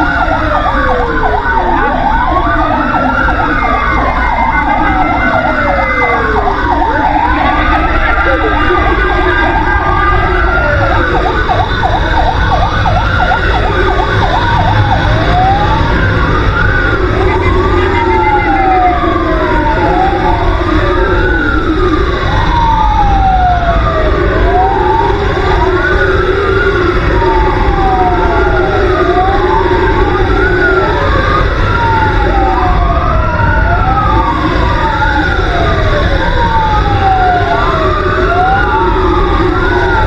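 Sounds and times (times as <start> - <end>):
electronic sirens wailing: 0.0 - 40.0
truck low rumble: 0.0 - 40.0.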